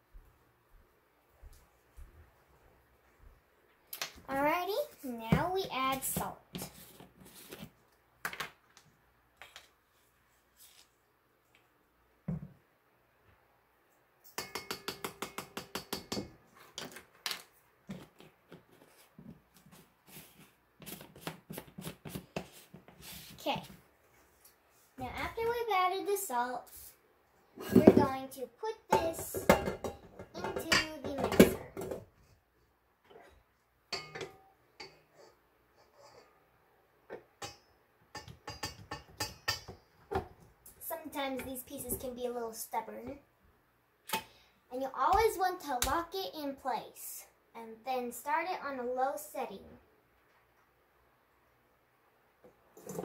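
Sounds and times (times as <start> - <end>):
metal bowl and beater clinking: 14.2 - 16.3, 28.9 - 31.6, 33.9 - 35.0.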